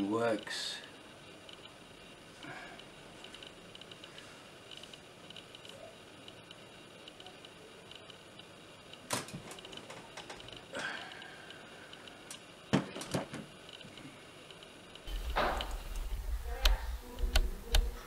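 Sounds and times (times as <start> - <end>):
sharp clicks and knocks: 15.0 - 18.0.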